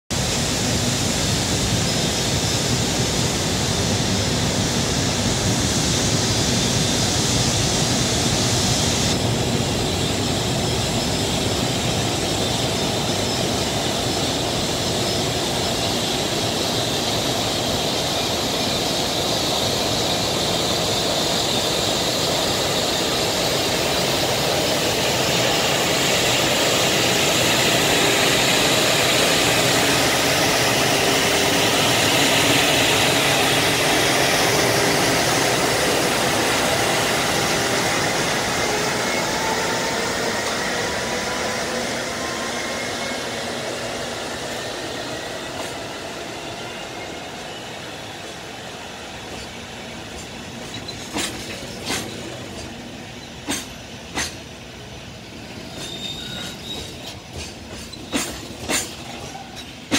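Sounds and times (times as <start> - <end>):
electric locomotive rumbling: 0.1 - 59.9
cooling blowers whirring: 0.2 - 46.8.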